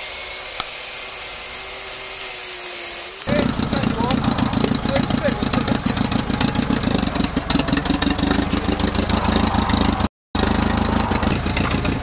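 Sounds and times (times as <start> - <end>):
tractor engine idling: 3.3 - 12.0.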